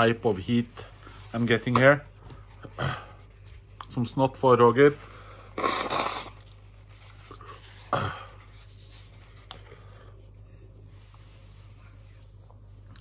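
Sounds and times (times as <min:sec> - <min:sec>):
person blowing nose into tissue: 0:05.1 - 0:10.0.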